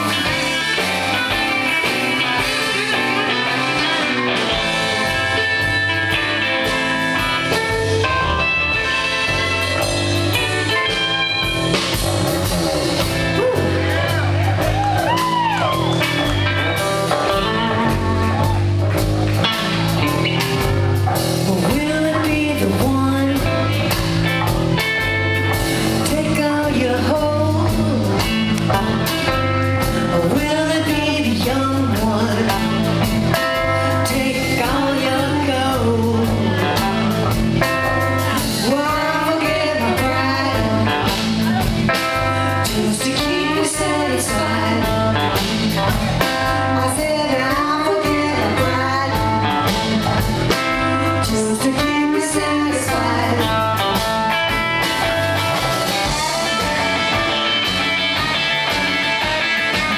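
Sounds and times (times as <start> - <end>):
drums: 0.0 - 59.9
electric bass: 0.0 - 59.9
electric guitars: 0.0 - 59.9
woman singing: 21.4 - 24.1, 25.9 - 54.5.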